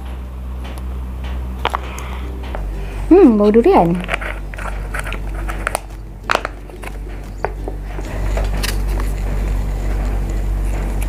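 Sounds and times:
plastic pouch crinkling: 0:03.9 - 0:07.6.

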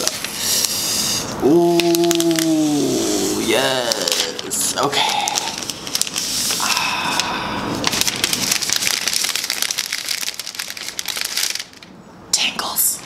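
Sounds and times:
plastic sleeve crinkling: 0:01.8 - 0:06.6, 0:07.2 - 0:12.0.

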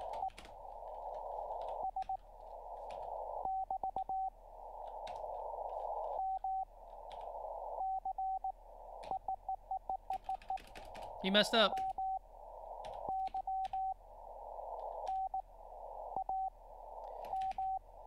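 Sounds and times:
morse code beeps: 0:01.0 - 0:02.2, 0:03.4 - 0:04.3, 0:06.1 - 0:06.7, 0:07.8 - 0:12.2, 0:12.9 - 0:14.0, 0:17.2 - 0:17.8
computer keyboard clicks: 0:10.1 - 0:11.1, 0:17.1 - 0:17.7
radio band hiss: 0:11.1 - 0:17.1.

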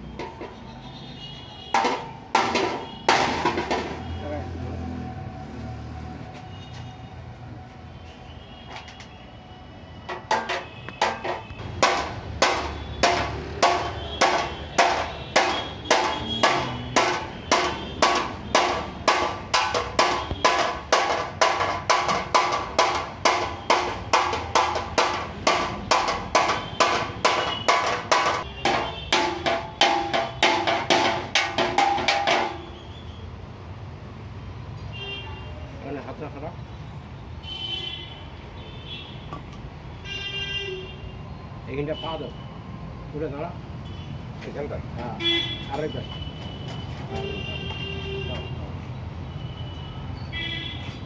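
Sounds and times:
hammer blows on metal: 0:10.1 - 0:32.8.

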